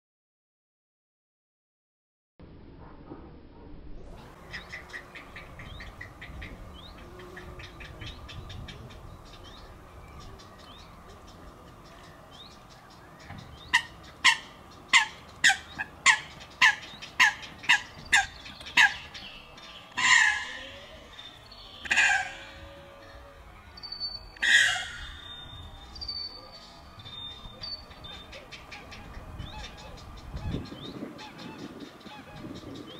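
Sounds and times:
heron chicks sharp calls: 0:04.4 - 0:22.5, 0:24.4 - 0:25.4, 0:27.1 - 0:32.9
heron chicks clicking calls: 0:10.2 - 0:20.5
harsh squawk: 0:20.0 - 0:21.1, 0:21.8 - 0:23.0, 0:24.4 - 0:25.3.

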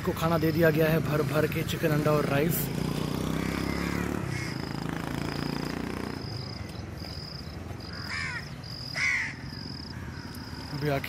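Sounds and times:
insects chirping: 0:00.0 - 0:11.0
crow cawing: 0:03.2 - 0:05.0, 0:07.8 - 0:10.8.

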